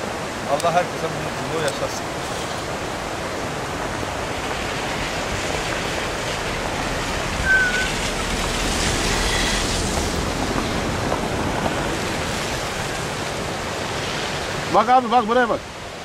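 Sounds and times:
running water rushing: 0.0 - 16.0
brief high chirp: 7.4 - 8.0.

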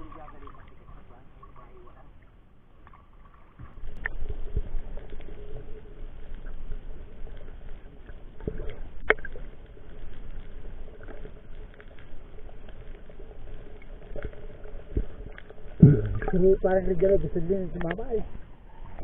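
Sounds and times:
muffled water sloshing: 0.0 - 19.0.

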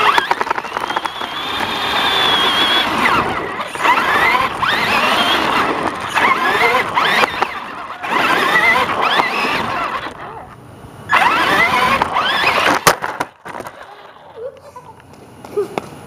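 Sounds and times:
rc car motor whining: 0.0 - 14.6
wheels rattling on concrete: 0.0 - 16.0.

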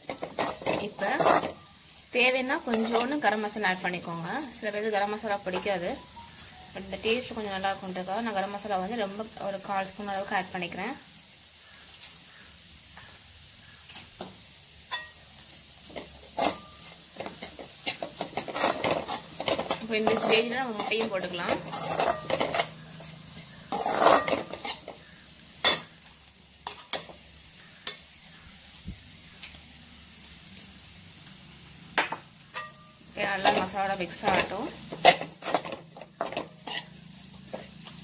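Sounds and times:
metal spatula scraping a pan: 0.0 - 7.4, 14.9 - 26.0, 32.0 - 38.0
faint sizzle of frying: 0.0 - 38.0.

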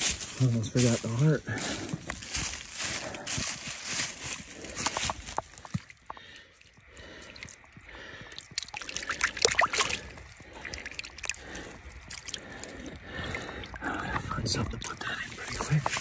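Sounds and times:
leaves crackling: 0.0 - 5.8, 14.8 - 16.0
wet dripping handling: 4.6 - 16.0.

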